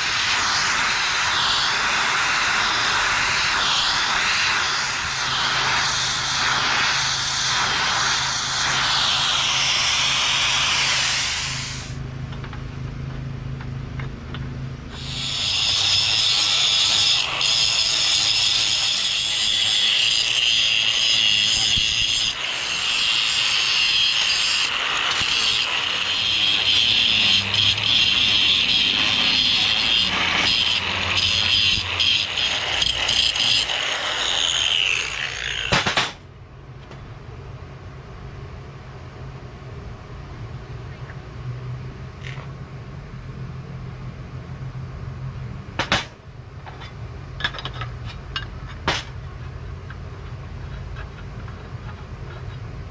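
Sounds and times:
angle grinder grinding metal: 0.0s - 12.0s, 14.9s - 36.2s
plasma torch hissing: 0.0s - 12.0s, 14.9s - 36.2s.

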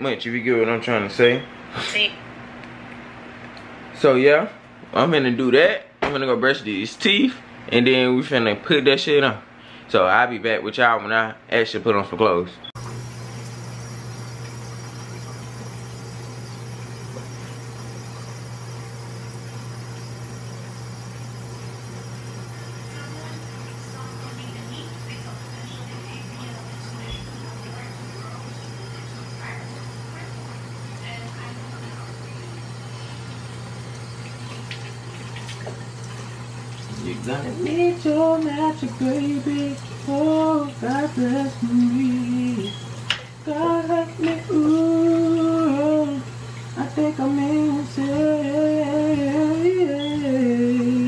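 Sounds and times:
fan humming and hissing: 0.0s - 51.0s
water running from sink tap: 12.8s - 51.0s
man humming: 36.9s - 38.0s.

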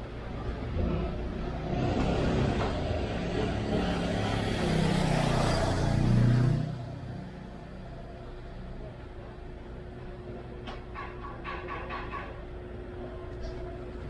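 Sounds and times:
vehicle passing close by: 0.7s - 7.4s.

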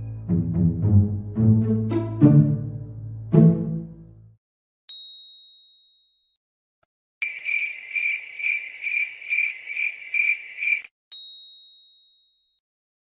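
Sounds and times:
bell ding: 4.9s - 6.4s, 11.1s - 12.6s
cricket-like chirping: 7.2s - 10.9s.

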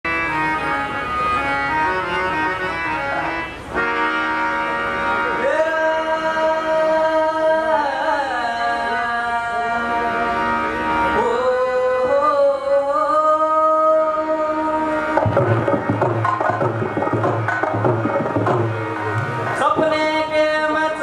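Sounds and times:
instrumental music: 0.0s - 21.0s
person singing: 11.2s - 15.2s.

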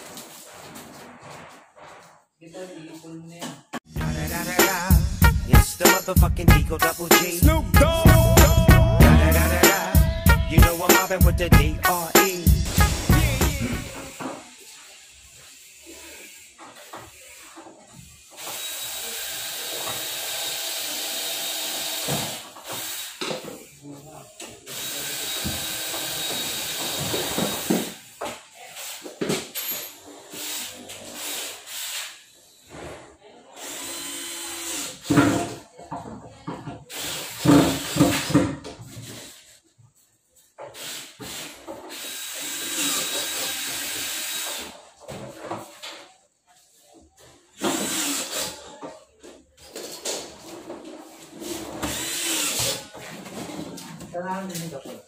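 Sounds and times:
power drill running: 18.4s - 23.2s, 24.7s - 28.0s, 30.4s - 32.1s, 33.6s - 35.0s, 40.8s - 44.7s, 47.7s - 48.5s, 51.9s - 52.8s.

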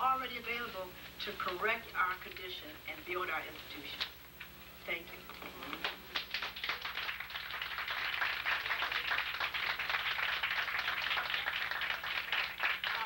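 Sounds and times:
audience applauding: 5.8s - 13.0s.

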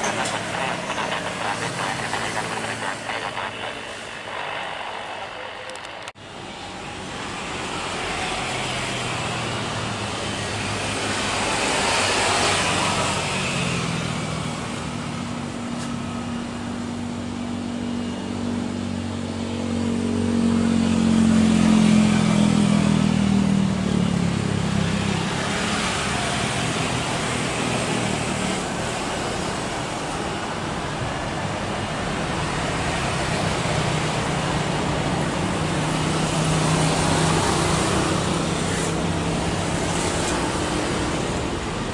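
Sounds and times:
jet engines droning: 0.0s - 21.2s.

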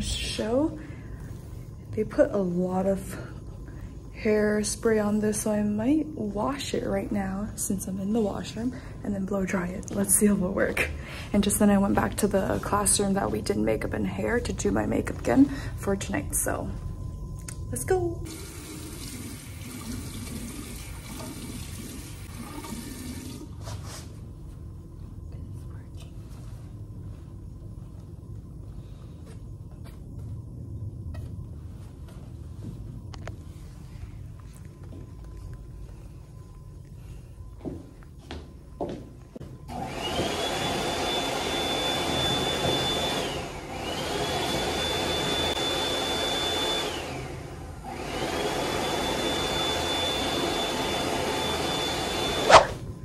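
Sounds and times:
hand dryer blowing: 39.7s - 52.8s.

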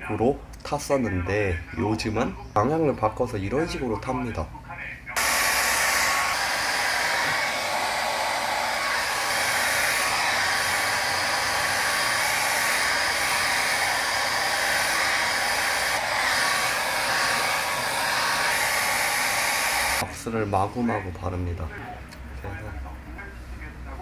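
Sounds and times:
hair dryer blowing: 5.2s - 20.1s.

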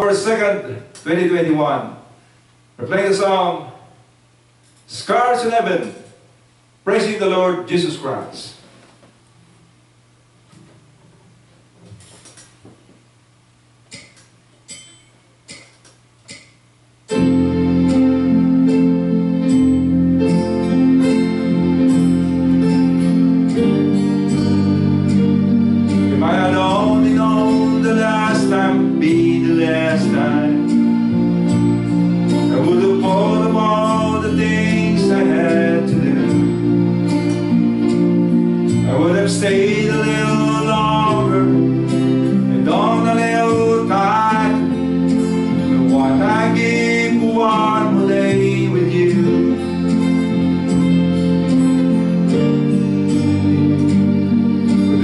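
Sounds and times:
acoustic guitar: 17.1s - 55.0s
electronic keyboard: 17.1s - 55.0s
person singing: 26.0s - 31.4s, 32.4s - 37.0s, 38.8s - 50.8s.

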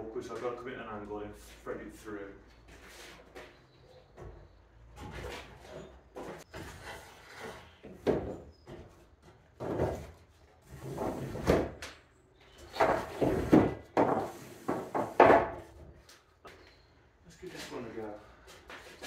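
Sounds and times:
timber scraping and bumping on wood: 5.0s - 11.8s, 12.6s - 15.9s.

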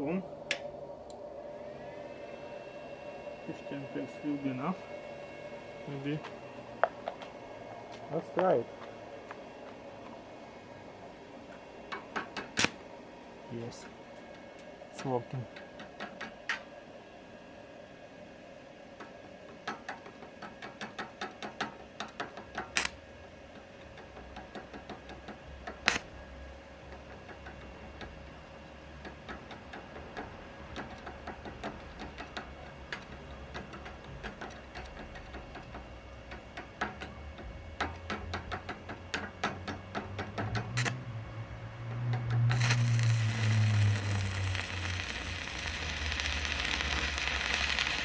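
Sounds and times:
faint steady hum: 0.0s - 48.0s
welding rod tapping on steel: 19.0s - 26.1s, 26.9s - 28.2s, 29.0s - 41.0s, 41.9s - 48.0s.

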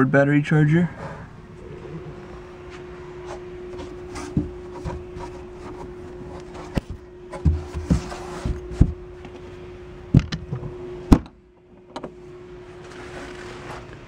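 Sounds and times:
low hum: 0.0s - 14.0s
knocks and thumps of hatch: 10.1s - 12.2s.

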